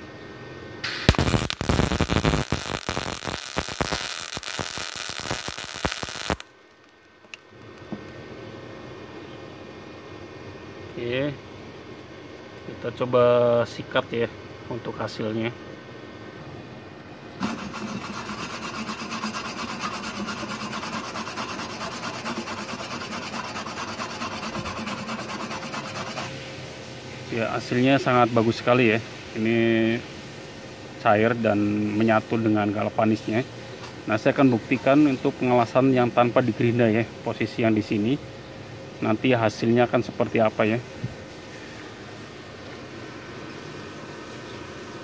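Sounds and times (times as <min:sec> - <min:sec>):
welding arc crackling: 0:00.8 - 0:07.4, 0:17.4 - 0:26.3
wire brush rasping on steel: 0:17.4 - 0:26.3.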